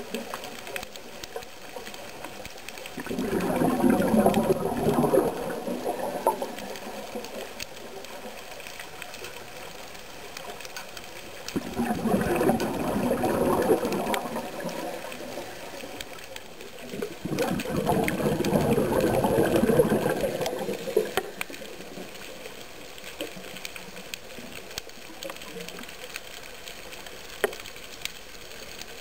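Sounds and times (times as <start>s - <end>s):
faint clicks: 0.0s - 29.0s
underwater bubbles gurgling: 0.0s - 29.0s
underwater hiss: 11.6s - 22.7s.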